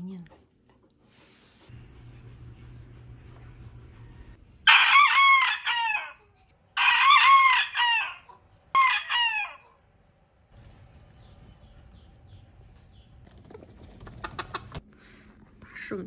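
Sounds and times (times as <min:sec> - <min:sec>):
rooster crowing: 0:04.6 - 0:09.8.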